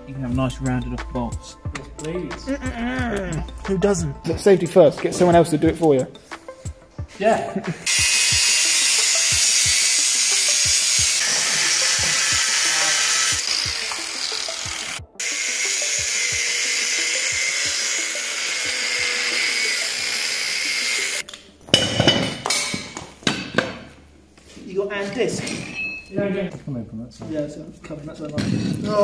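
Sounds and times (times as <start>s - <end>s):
angle grinder cutting steel: 7.8s - 21.2s.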